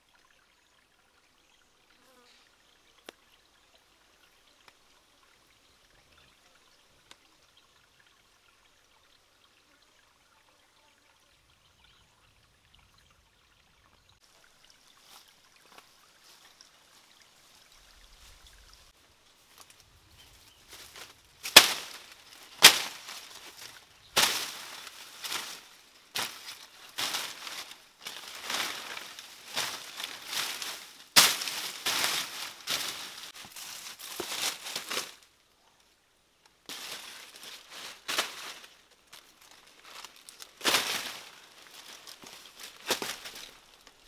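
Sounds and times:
dry leaves crackling and rustling: 19.6s - 35.3s, 36.7s - 44.0s
stems snapping: 21.0s - 33.4s.

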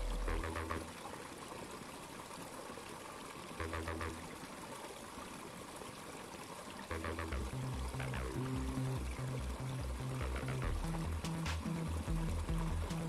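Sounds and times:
quiet background music: 6.9s - 13.0s.

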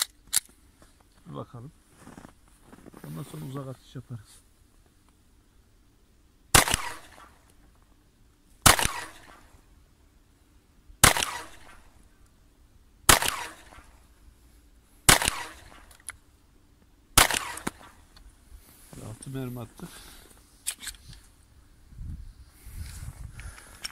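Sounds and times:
pistol shots: 6.5s - 7.4s, 8.6s - 9.6s, 11.0s - 12.0s, 13.1s - 14.0s, 15.1s - 15.9s, 17.2s - 18.0s.

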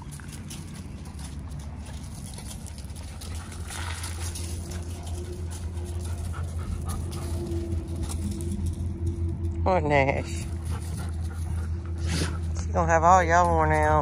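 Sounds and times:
paws crunching on gravel: 0.0s - 8.5s
dog panting: 0.5s - 8.5s, 10.4s - 12.6s.

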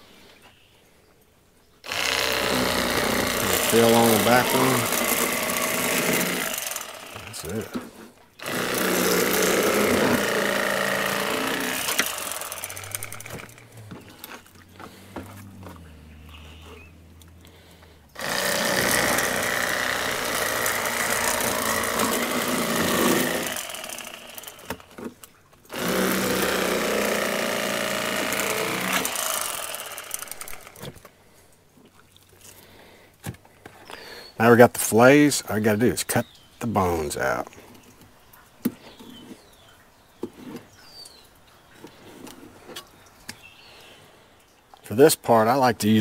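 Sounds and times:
electric fillet knife sawing fish: 1.9s - 7.7s, 8.4s - 16.0s, 17.5s - 25.0s, 25.7s - 30.8s.

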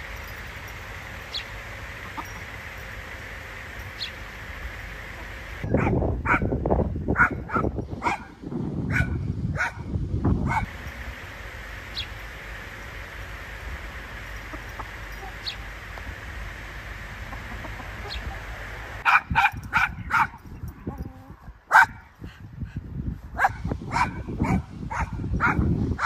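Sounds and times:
dog barking: 5.7s - 9.9s, 10.5s - 10.7s, 19.0s - 20.4s, 21.7s - 22.1s, 23.4s - 25.7s.

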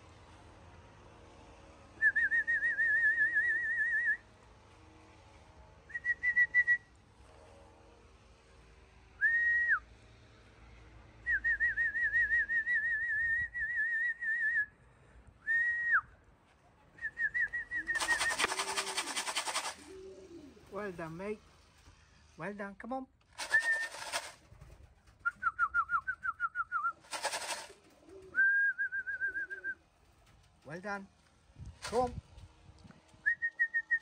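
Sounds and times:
trilled whistle calls: 17.0s - 19.9s, 23.4s - 24.3s
loud rattling noise: 17.9s - 19.9s, 23.3s - 25.1s, 27.0s - 28.1s, 31.8s - 32.1s.

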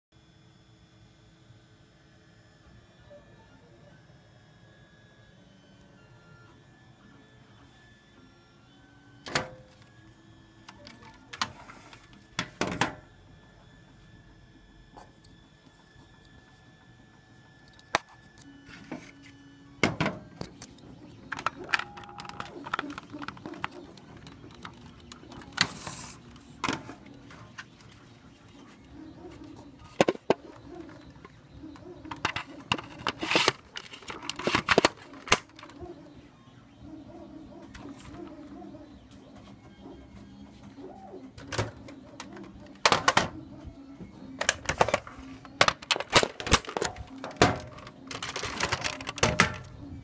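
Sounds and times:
plastic toy parts knocking: 30.0s - 31.0s, 44.4s - 49.7s.

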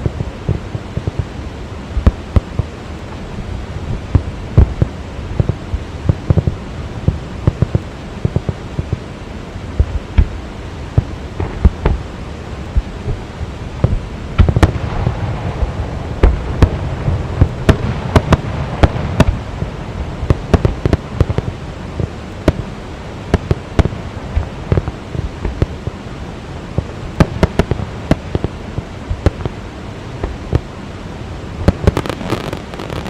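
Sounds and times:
fireworks exploding: 0.0s - 1.3s, 4.0s - 9.0s, 11.0s - 12.1s, 13.8s - 22.7s, 23.3s - 26.0s, 26.8s - 29.6s, 31.6s - 33.0s
steady rushing background: 0.0s - 33.0s.

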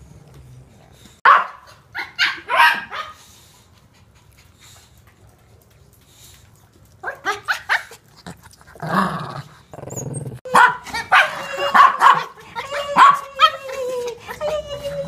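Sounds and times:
small dogs yapping: 1.2s - 3.3s, 7.0s - 9.0s, 9.8s - 15.0s
dog growling: 7.9s - 12.9s.

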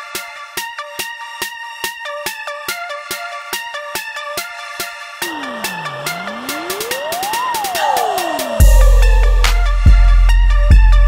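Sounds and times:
steady electronic beat: 5.2s - 9.8s
electronic music with synth chords: 5.2s - 10.1s.

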